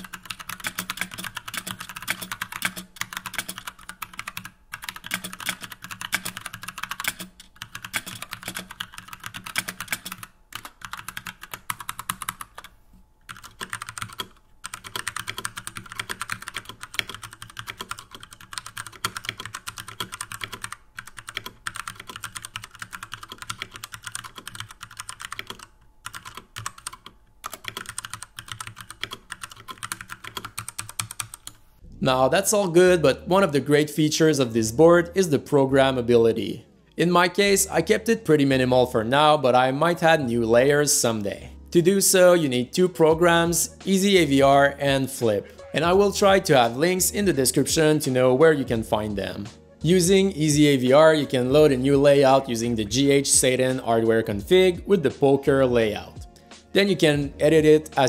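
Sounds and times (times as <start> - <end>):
fast mechanical keyboard typing: 0.0 - 12.7, 13.3 - 31.6.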